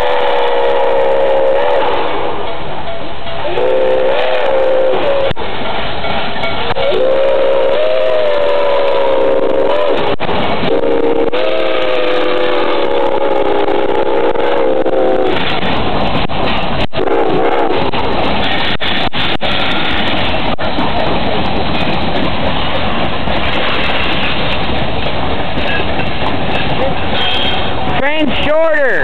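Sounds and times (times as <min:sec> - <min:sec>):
steam locomotive chime whistle: 0:00.0 - 0:05.4, 0:06.1 - 0:15.5, 0:27.1 - 0:29.0
train rumble and hiss: 0:00.0 - 0:29.0.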